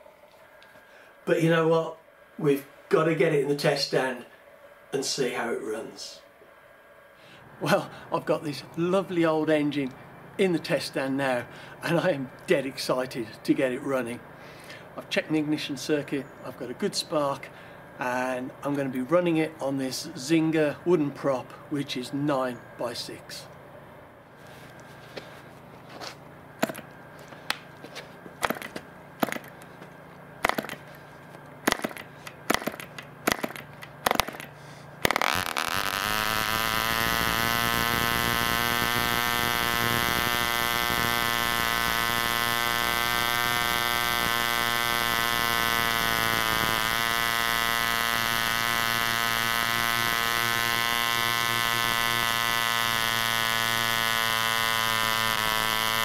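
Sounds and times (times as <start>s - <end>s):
propeller flicks: 26.6s - 56.0s
model engine running at high speed: 35.0s - 56.0s.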